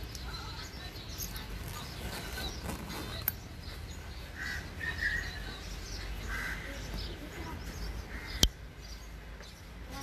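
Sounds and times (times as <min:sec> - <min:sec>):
crow cawing: 0:06.3 - 0:06.9, 0:08.1 - 0:08.4.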